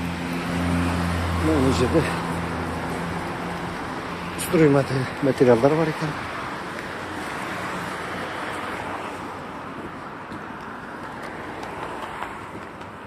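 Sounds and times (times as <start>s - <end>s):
road traffic rushing hiss: 0.0s - 13.0s.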